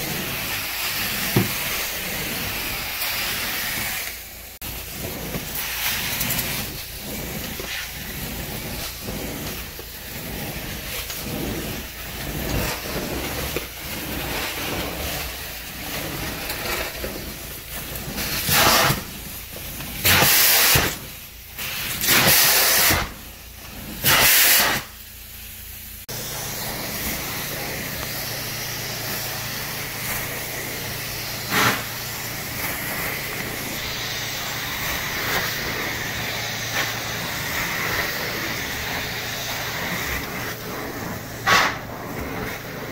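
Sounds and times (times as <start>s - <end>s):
vacuum wand hissing on carpet: 0.0s - 25.4s, 26.0s - 42.9s
loud rushes of air: 26.0s - 42.9s.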